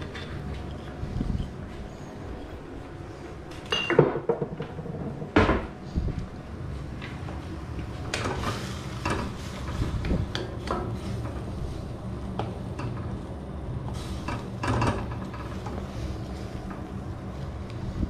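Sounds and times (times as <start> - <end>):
steady low rumble: 0.0 - 3.6, 5.0 - 14.6, 15.2 - 18.0.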